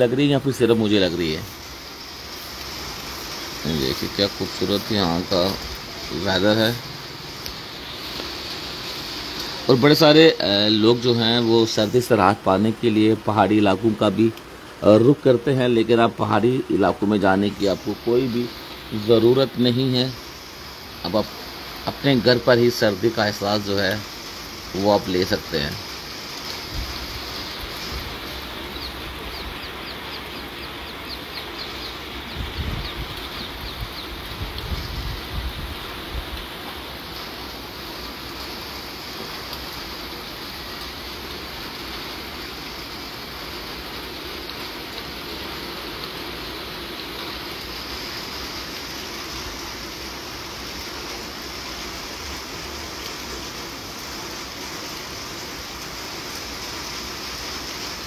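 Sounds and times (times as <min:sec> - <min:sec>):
steady rain falling: 0:00.0 - 0:58.0
bird chirping: 0:27.3 - 0:35.0.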